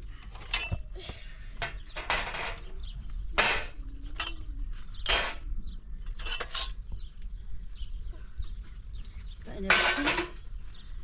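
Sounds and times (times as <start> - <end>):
objects clinking and knocking: 0.3 - 0.9, 3.4 - 5.4, 6.1 - 6.9, 9.7 - 10.4.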